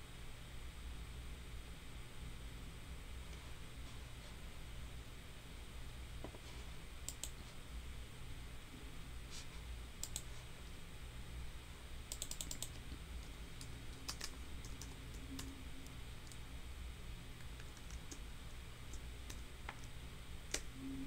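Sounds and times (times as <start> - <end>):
faint low hum: 0.0 - 21.0
keyboard typing: 7.1 - 7.4, 10.0 - 10.4, 12.1 - 16.4, 17.4 - 18.2
mouse clicking: 7.1 - 7.4, 10.0 - 10.3, 12.1 - 16.4, 17.4 - 18.2, 20.5 - 20.7.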